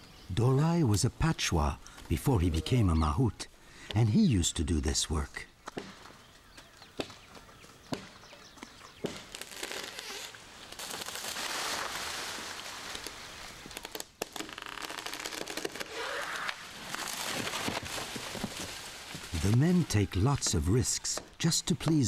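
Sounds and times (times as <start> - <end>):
leaves rustling: 1.2 - 21.5
branches cracking: 5.6 - 21.4.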